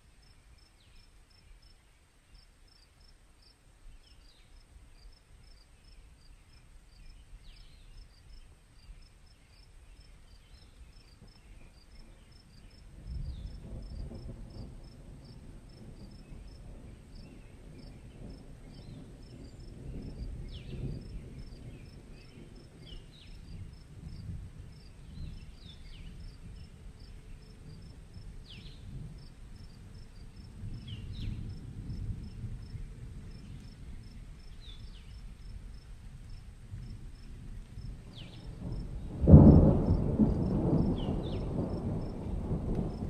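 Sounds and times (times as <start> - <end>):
thunder: 11.2 - 43.0
crickets chirping: 19.2 - 43.0.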